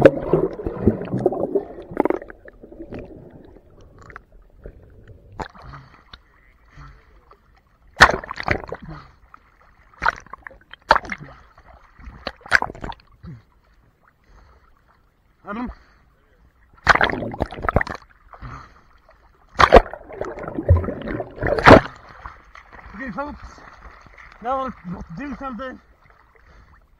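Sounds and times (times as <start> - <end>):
water splashing and gurgling: 0.0 - 13.6, 16.7 - 26.9
small waves slapping: 19.3 - 26.8.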